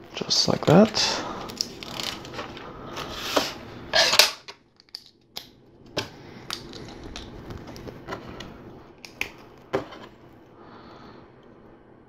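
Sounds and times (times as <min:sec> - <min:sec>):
plastic bricks clicking and rattling: 0:06.4 - 0:07.9.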